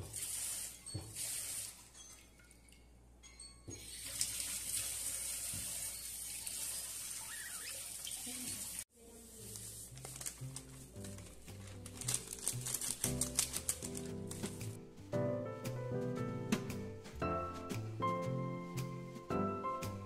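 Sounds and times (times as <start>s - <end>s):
water running from a tap: 0.0s - 1.9s, 3.8s - 8.9s.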